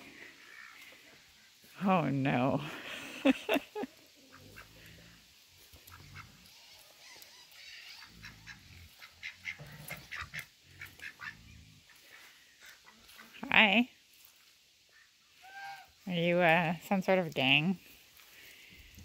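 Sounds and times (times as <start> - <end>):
low animal calls: 4.2 - 13.2.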